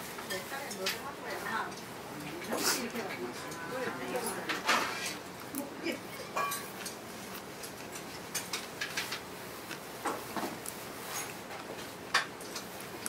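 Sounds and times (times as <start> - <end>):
restaurant background noise: 0.0 - 13.0
chopsticks clinking on bowls: 0.3 - 7.0.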